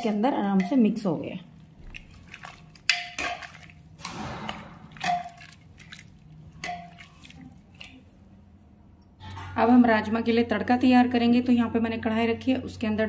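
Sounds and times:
wet squelching of stirred beans: 0:00.0 - 0:08.4.

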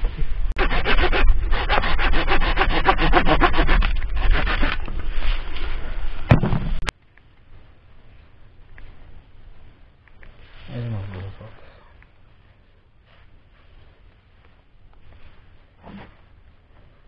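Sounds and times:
hand saw cutting branch: 0:00.6 - 0:05.6
sharp knock: 0:06.3 - 0:06.9.

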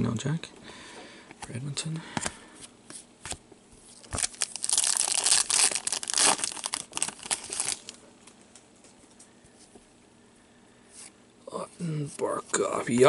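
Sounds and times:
foil wrapper tearing and crinkling: 0:04.0 - 0:08.0.

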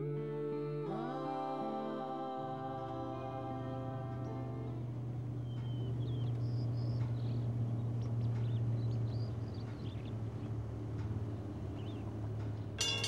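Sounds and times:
low engine rumble: 0:00.0 - 0:13.0
small birds chirping: 0:04.2 - 0:13.0.

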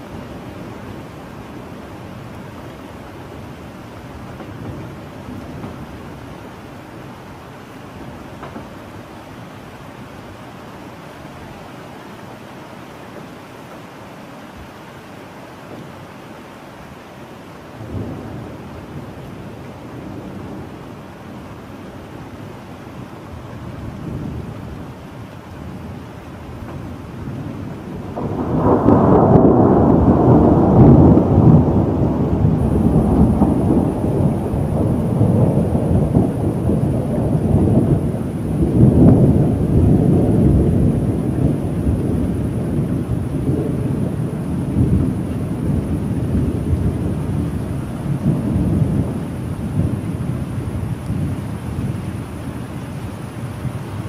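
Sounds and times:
steady rain: 0:00.0 - 0:54.0
thunder rolling: 0:26.6 - 0:52.4.

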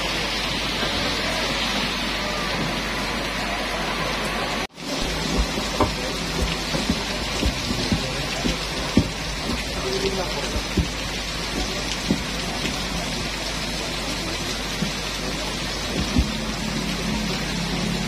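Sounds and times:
heavy rain: 0:00.0 - 0:18.0
short dull thumps: 0:05.0 - 0:12.9, 0:15.9 - 0:16.8.

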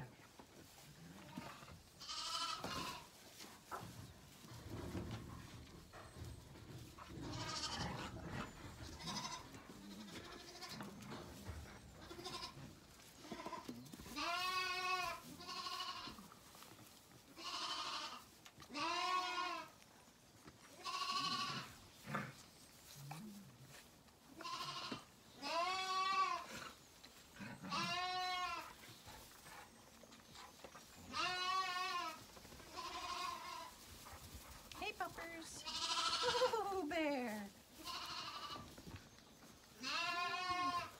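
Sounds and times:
lambs bleating: 0:01.3 - 0:03.1, 0:07.2 - 0:08.2, 0:08.8 - 0:09.6, 0:10.2 - 0:10.8, 0:12.1 - 0:12.6, 0:13.2 - 0:16.2, 0:17.4 - 0:19.7, 0:20.8 - 0:21.8, 0:24.4 - 0:26.5, 0:27.4 - 0:28.8, 0:31.1 - 0:33.8, 0:35.4 - 0:37.0, 0:37.8 - 0:38.7, 0:39.8 - 0:40.9.

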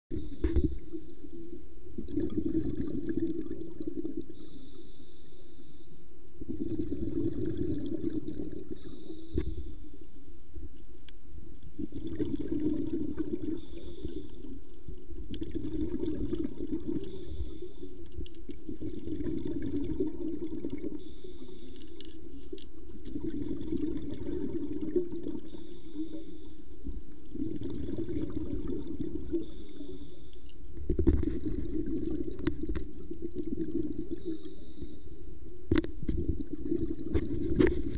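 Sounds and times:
exhaled air bubbling: 0:00.1 - 0:10.8, 0:11.4 - 0:37.9
regulator hiss on inhale: 0:00.2 - 0:01.5, 0:04.3 - 0:06.4, 0:08.7 - 0:10.8, 0:13.5 - 0:15.2, 0:16.9 - 0:18.2, 0:20.9 - 0:22.5, 0:25.4 - 0:27.1, 0:29.3 - 0:30.5, 0:34.2 - 0:35.7.

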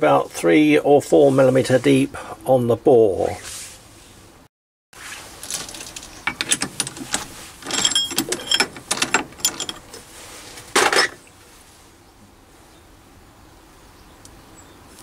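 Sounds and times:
metal clatter: 0:05.4 - 0:10.0.

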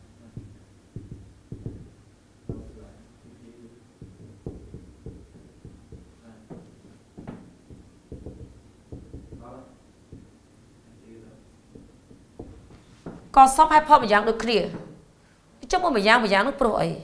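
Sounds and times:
marker writing on whiteboard: 0:00.2 - 0:02.8, 0:04.0 - 0:10.4, 0:11.7 - 0:13.3.

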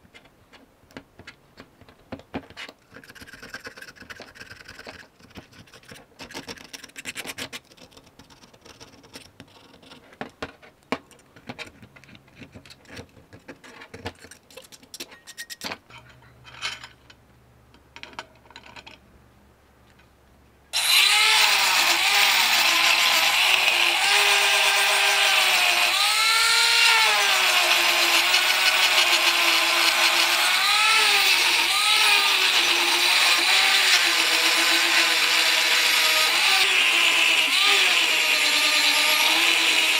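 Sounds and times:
angle grinder on steel: 0:20.8 - 0:39.9.

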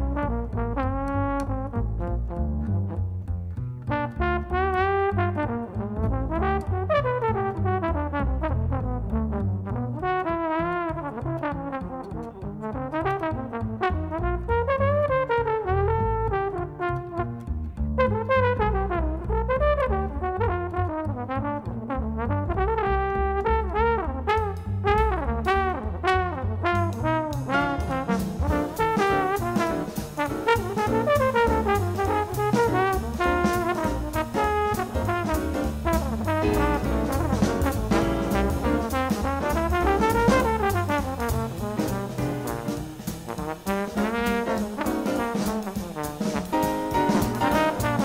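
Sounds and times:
acoustic bass: 0:00.0 - 0:48.0
jazz trombone solo: 0:00.0 - 0:48.0
piano: 0:00.0 - 0:48.0
drum cymbals: 0:27.4 - 0:48.0.

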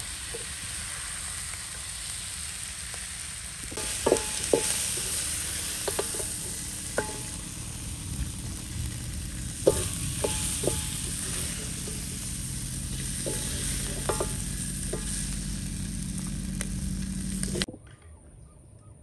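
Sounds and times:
food sizzling in a pan: 0:00.0 - 0:17.7
utensil knocking against pan: 0:03.8 - 0:07.4, 0:09.6 - 0:12.2, 0:12.9 - 0:15.2.

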